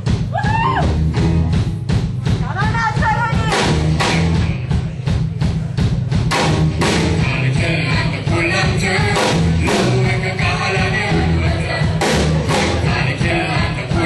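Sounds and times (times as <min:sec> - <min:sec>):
drum beat and bass: 0:00.0 - 0:14.0
group singing: 0:06.8 - 0:14.0.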